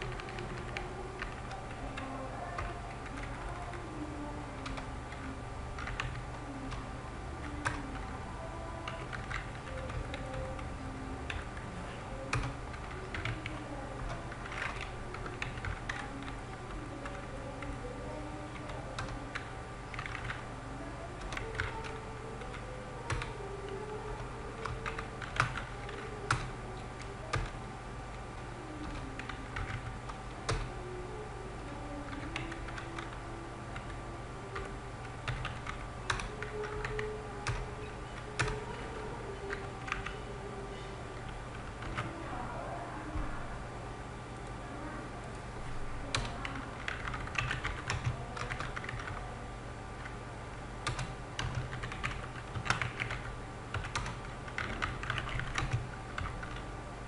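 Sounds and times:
typing on a keyboard: 0.0 - 3.8, 4.6 - 6.8, 7.4 - 8.1, 8.8 - 11.6, 12.2 - 17.8, 18.5 - 20.4, 21.2 - 27.6, 28.8 - 30.7, 32.0 - 33.2, 33.8 - 40.2, 41.2 - 42.1, 46.1 - 49.2, 50.8 - 56.6.

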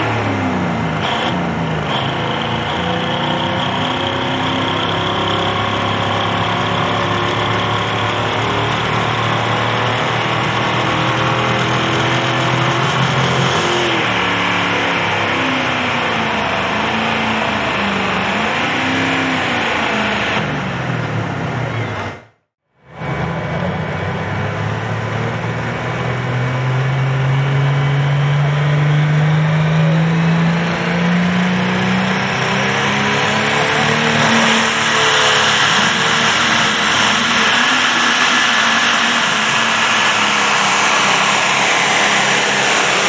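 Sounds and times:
tractor diesel engine revving: 0.0 - 43.0
high whine: 29.6 - 43.0.

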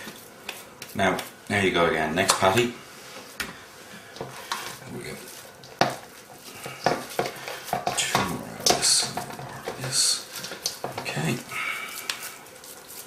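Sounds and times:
hands handling minced meat: 4.4 - 13.0.

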